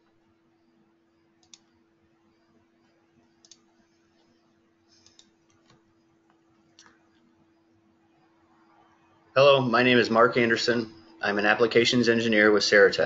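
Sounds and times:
faint steady hum: 0.0s - 13.0s
faint sharp clicks: 1.4s - 1.7s, 5.0s - 7.2s.

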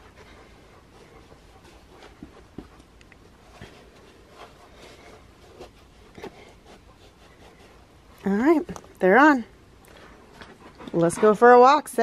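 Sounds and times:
feet tapping on carpet: 0.0s - 7.5s.

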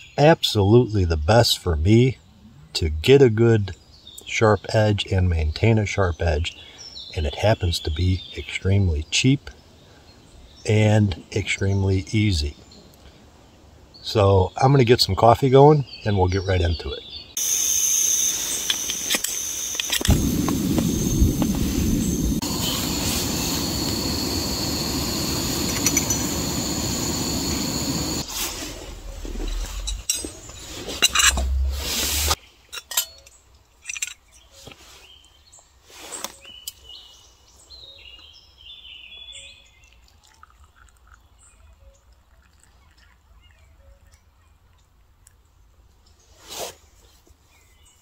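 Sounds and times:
birds chirping: 0.0s - 46.4s
gas stove hissing: 17.4s - 29.0s.

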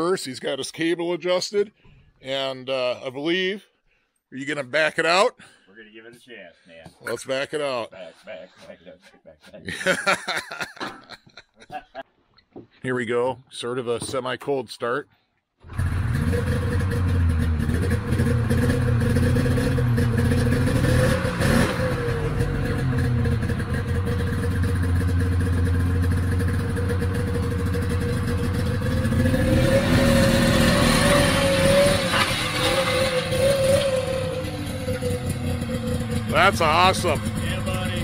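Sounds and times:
snowmobile engine idling and revving: 15.7s - 38.0s.

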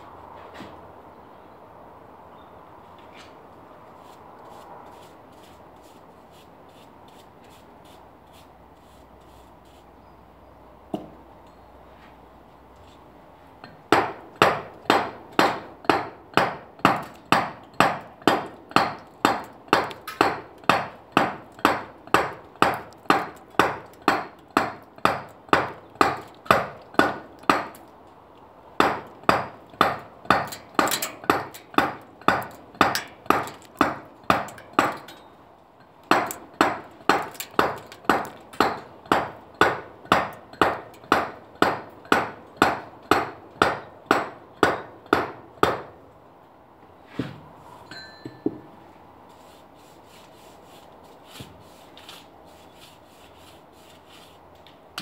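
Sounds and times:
mallet striking chisel into stone: 13.7s - 27.8s, 28.8s - 35.2s, 36.1s - 45.9s.

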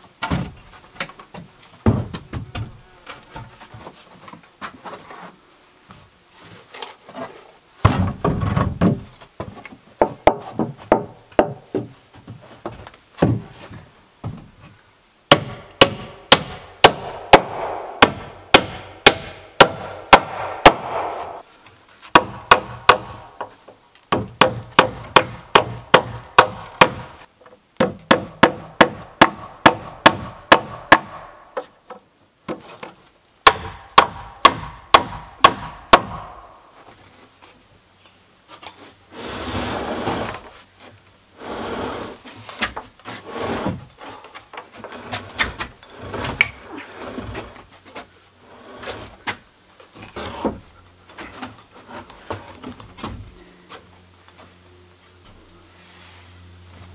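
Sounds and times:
scraping rustle: 0.5s - 7.6s, 36.7s - 56.9s
hammer driving nails into wood: 15.3s - 21.4s, 22.2s - 23.5s, 24.1s - 27.2s, 27.8s - 31.4s, 33.4s - 36.6s.

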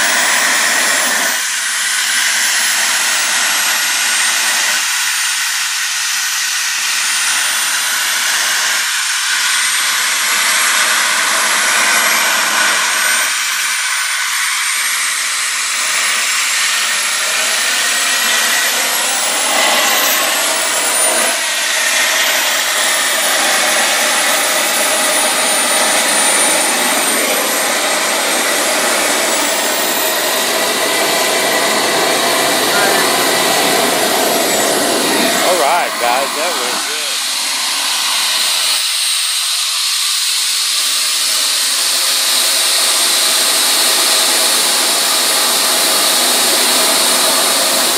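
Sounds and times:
model jet turbine engines: 0.0s - 47.9s.

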